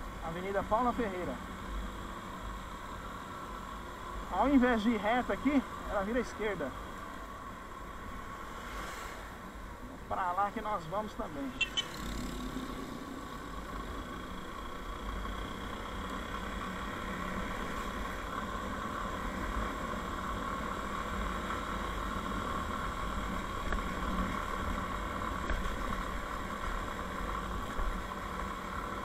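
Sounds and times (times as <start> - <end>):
motorcycle engine running: 11.0 - 29.0.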